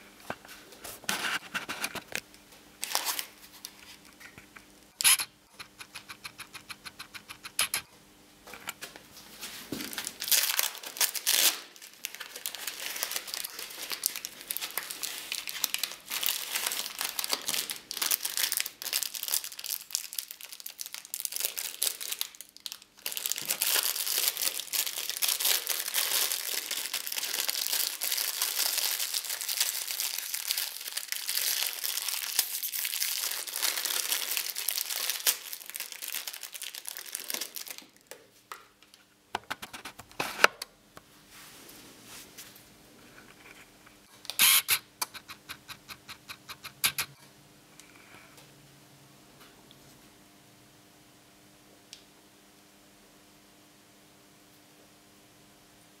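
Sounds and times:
plastic packaging crinkling: 0:02.8 - 0:04.3, 0:09.7 - 0:38.2.

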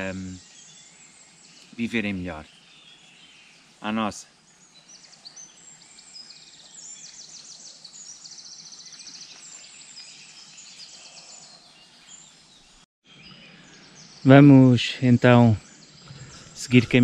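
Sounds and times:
bird trill: 0:00.0 - 0:17.0
songbirds singing: 0:00.0 - 0:17.0.

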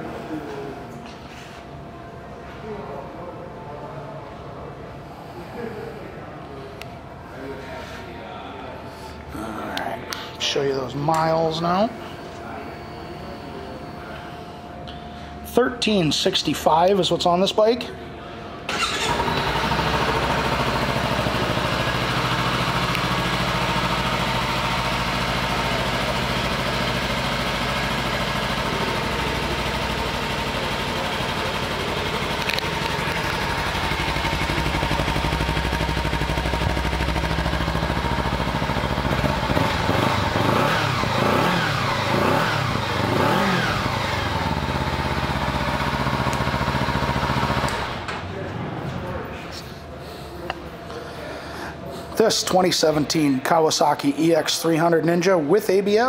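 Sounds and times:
motorcycle engine idling and revving: 0:18.7 - 0:48.2.

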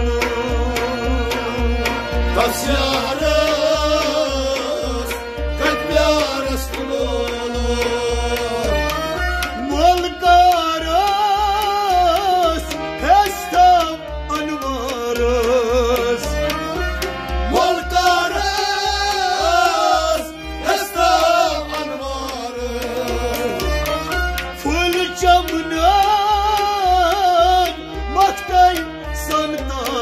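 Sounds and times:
man singing: 0:00.0 - 0:30.0
repeating drum beat: 0:16.4 - 0:27.0.

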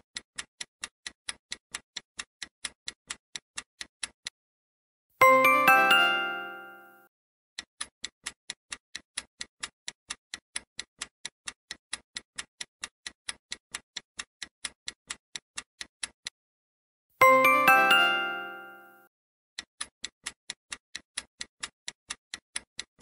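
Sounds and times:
clock ticking: 0:00.0 - 0:04.4, 0:05.2 - 0:06.9, 0:07.6 - 0:16.4, 0:17.2 - 0:19.0, 0:19.6 - 0:23.0
bright chime: 0:05.2 - 0:07.1, 0:17.2 - 0:19.1.

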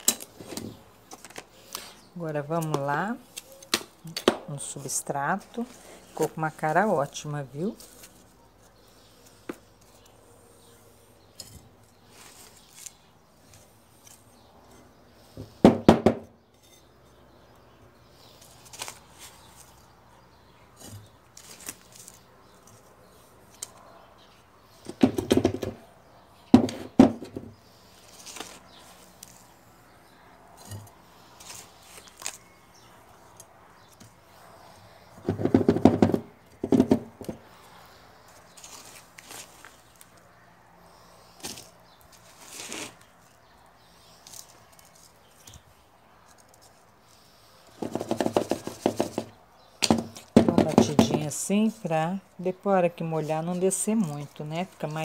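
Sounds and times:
handling sounds: 0:00.0 - 0:14.5, 0:20.7 - 0:24.0, 0:30.5 - 0:40.3
scraping and rattling soil: 0:00.0 - 0:15.6, 0:18.0 - 0:27.0, 0:27.6 - 0:52.2.

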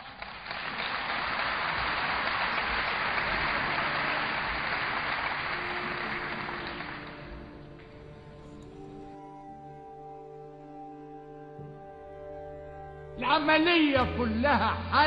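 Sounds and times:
audience clapping: 0:00.0 - 0:09.0
faint music: 0:01.8 - 0:15.0.

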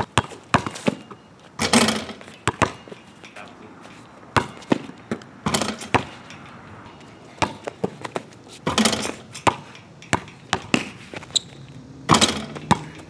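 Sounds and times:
basketball bouncing on asphalt: 0:00.0 - 0:03.2, 0:03.8 - 0:13.0
basketball rim clattering: 0:00.1 - 0:03.5, 0:04.3 - 0:13.0.

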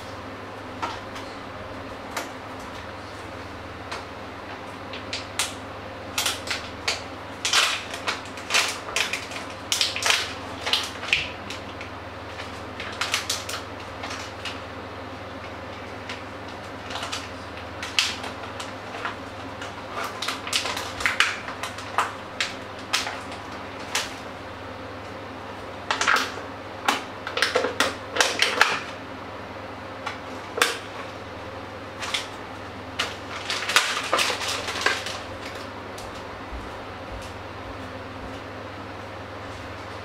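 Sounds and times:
steady low hum: 0:00.0 - 0:40.0
plastic packaging clicks and rustles: 0:04.9 - 0:14.6, 0:15.4 - 0:24.2, 0:25.9 - 0:29.0, 0:32.0 - 0:32.4, 0:33.0 - 0:36.2.

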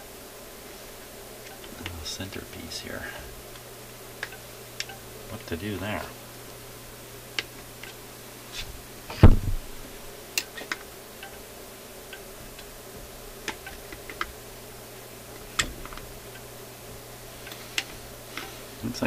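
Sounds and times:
dull thump: 0:09.1 - 0:09.7
small clicks and taps: 0:12.1 - 0:14.4, 0:15.4 - 0:16.5.

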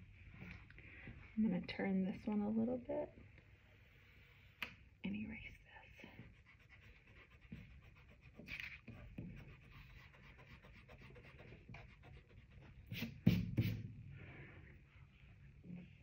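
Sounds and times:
eraser rubbing on paper: 0:06.2 - 0:13.8.

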